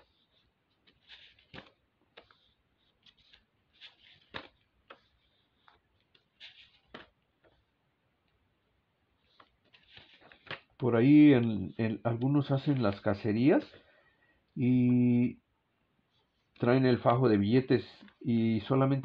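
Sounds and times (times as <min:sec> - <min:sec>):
paper banknotes rustling: 0:00.0 - 0:08.4, 0:09.1 - 0:13.9.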